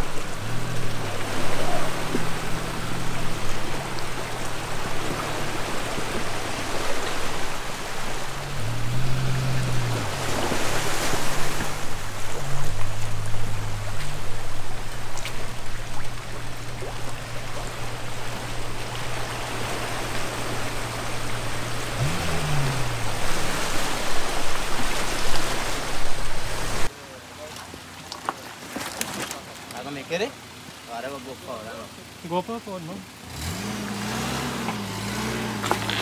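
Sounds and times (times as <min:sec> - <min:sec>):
vehicle engine humming: 0:00.0 - 0:27.2, 0:29.7 - 0:36.0
rushing river water: 0:00.0 - 0:36.0.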